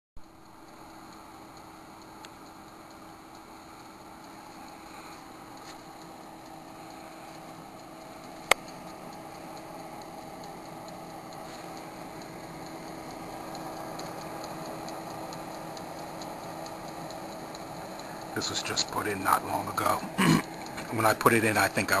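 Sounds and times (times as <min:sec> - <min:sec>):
mechanical timer ticking: 0:00.2 - 0:22.0
oven fan whirring hum: 0:00.2 - 0:22.0
sharp click: 0:07.9 - 0:19.9.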